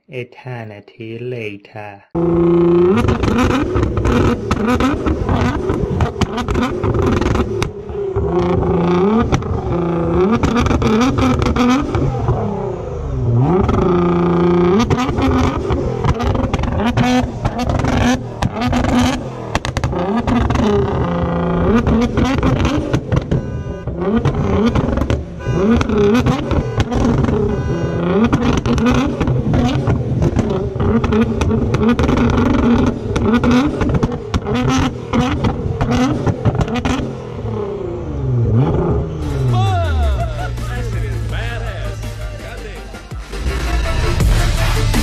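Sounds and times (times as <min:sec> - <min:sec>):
car engine revving: 0:02.2 - 0:45.0
exhaust pops and bangs: 0:02.9 - 0:12.4, 0:13.5 - 0:37.1.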